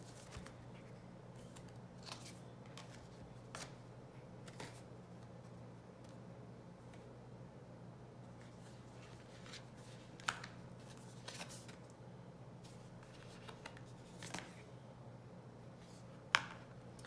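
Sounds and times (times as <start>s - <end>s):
soft card rustles: 0.0s - 6.2s, 8.2s - 11.9s, 12.6s - 14.7s
faint steady hum: 0.0s - 17.0s.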